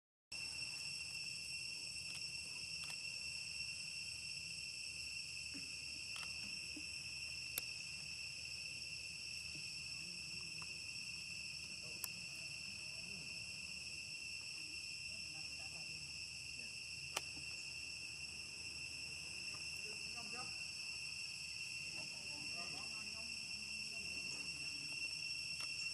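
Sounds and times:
high-pitched insect chorus: 0:00.3 - 0:25.9
faint sharp clicks: 0:07.5 - 0:07.7, 0:17.1 - 0:17.4, 0:25.6 - 0:25.8.

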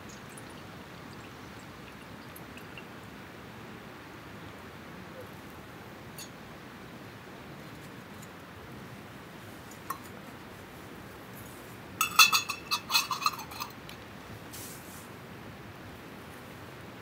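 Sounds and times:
faint hiss: 0:00.0 - 0:17.0
metallic clinks and rattles: 0:12.0 - 0:13.8.

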